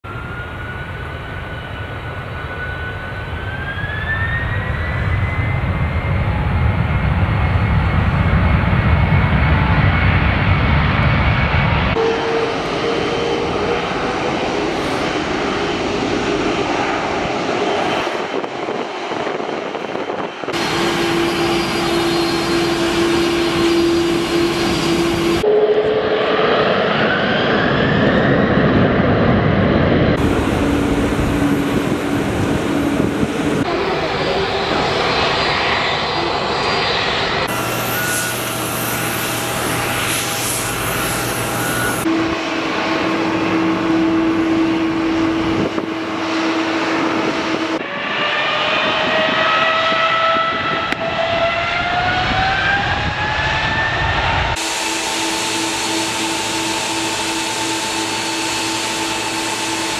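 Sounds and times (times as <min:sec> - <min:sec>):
jet engine whine spooling up: 0:00.0 - 0:59.9
deep engine rumble: 0:05.6 - 0:47.8
steady engine hum: 0:28.9 - 0:47.8.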